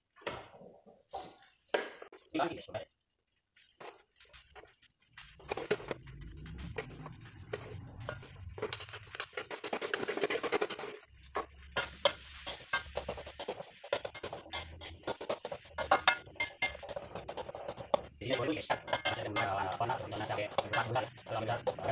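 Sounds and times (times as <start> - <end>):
spatula scraping wok: 3.6 - 21.9
spatula tapping pan: 11.2 - 21.9.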